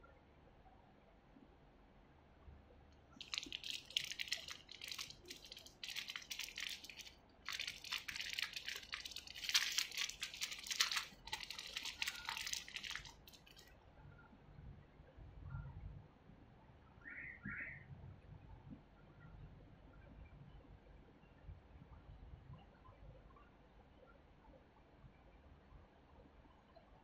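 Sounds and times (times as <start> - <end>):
plastic bag crinkling: 3.2 - 13.7.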